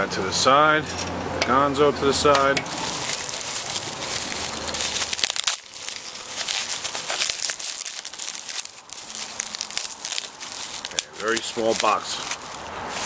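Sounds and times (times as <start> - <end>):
bubble wrap crinkling and crackling: 2.7 - 13.0.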